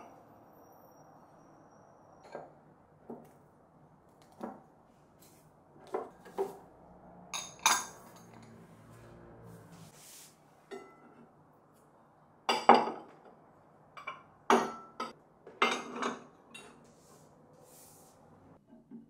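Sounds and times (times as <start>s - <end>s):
ceramic dishes clinking: 7.4s - 8.4s, 10.7s - 11.2s, 14.0s - 16.8s.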